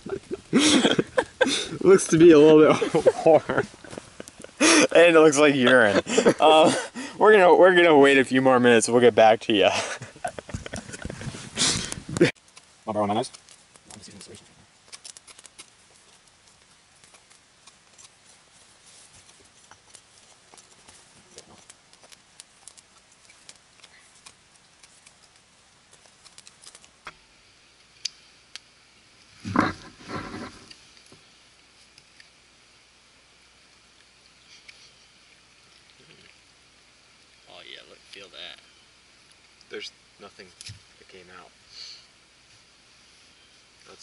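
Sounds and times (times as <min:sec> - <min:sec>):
knife scraping wood: 0:29.4 - 0:30.8.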